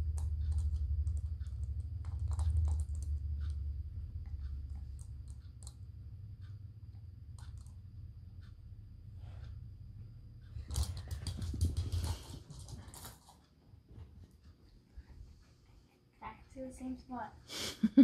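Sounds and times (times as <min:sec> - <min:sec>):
low rumble: 0:00.0 - 0:10.7.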